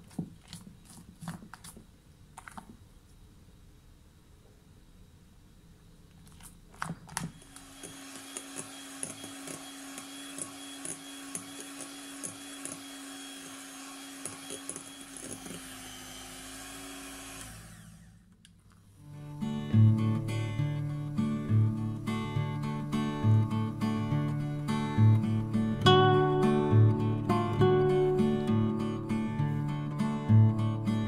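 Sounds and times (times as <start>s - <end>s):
electric hand mixer humming: 7.2s - 18.3s
acoustic guitar music: 19.0s - 31.0s.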